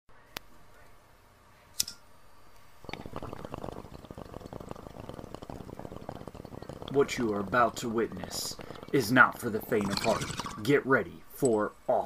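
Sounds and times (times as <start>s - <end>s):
sharp click: 1.8s - 2.0s
liquid bubbling: 2.8s - 12.0s.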